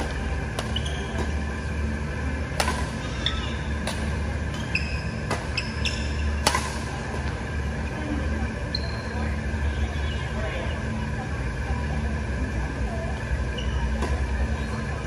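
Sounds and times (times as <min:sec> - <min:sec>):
racket striking shuttlecock: 0:00.0 - 0:01.4, 0:02.5 - 0:03.2, 0:03.8 - 0:04.6, 0:05.2 - 0:05.8, 0:06.4 - 0:07.2
steady low hum: 0:00.0 - 0:15.0
shoes squeaking on floor: 0:00.7 - 0:01.2, 0:04.5 - 0:06.3.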